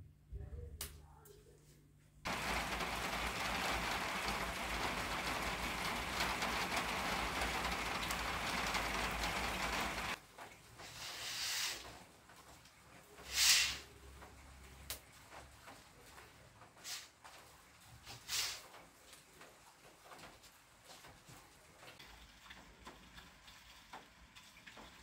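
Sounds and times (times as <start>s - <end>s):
steady rain falling: 2.3s - 25.0s
short hiss: 11.0s - 11.8s, 13.2s - 13.9s, 18.2s - 18.6s.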